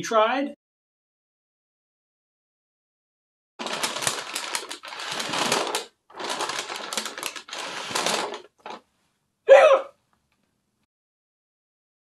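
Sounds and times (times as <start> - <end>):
paper bag crinkling: 3.6 - 8.9
man hiccuping: 9.5 - 10.0.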